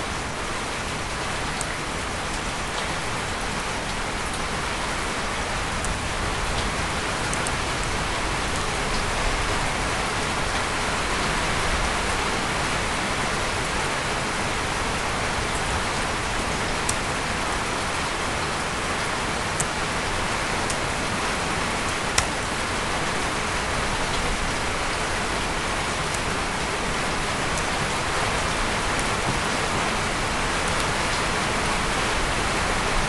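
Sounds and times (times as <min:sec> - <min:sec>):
faint sharp clicks: 0:30.6 - 0:31.0.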